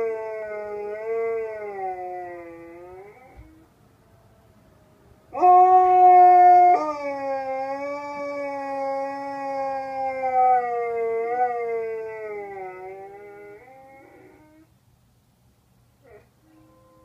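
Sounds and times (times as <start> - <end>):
husky howling: 0.0 - 3.6, 5.4 - 14.7.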